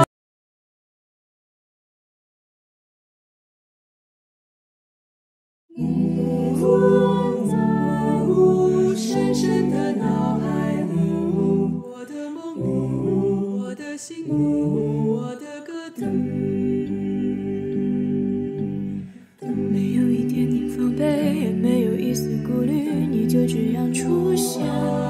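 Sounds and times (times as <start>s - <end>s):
group singing a cappella in harmony: 5.7s - 25.0s.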